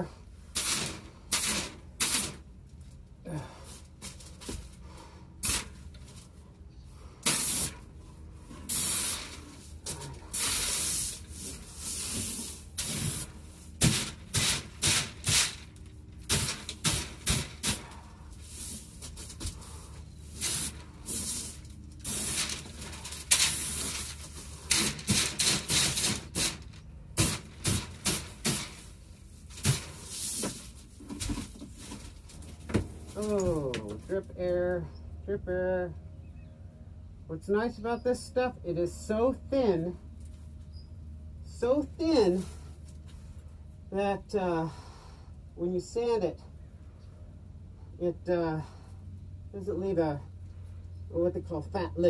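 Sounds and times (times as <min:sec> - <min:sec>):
paint spray gun hissing: 0:07.3 - 0:07.8.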